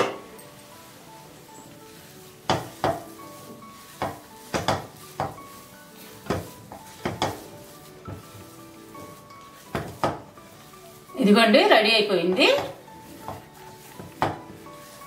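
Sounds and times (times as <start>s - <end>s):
spatula stirring thick dough: 0.2s - 15.0s
spatula knocking against pan: 2.5s - 3.1s, 4.0s - 5.4s, 6.2s - 7.4s, 9.7s - 10.3s.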